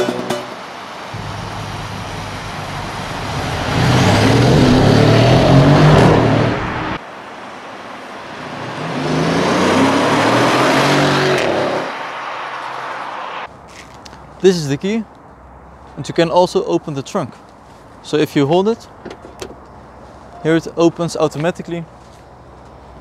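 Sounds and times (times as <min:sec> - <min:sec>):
car accelerating past: 0:01.1 - 0:07.0, 0:08.2 - 0:13.5.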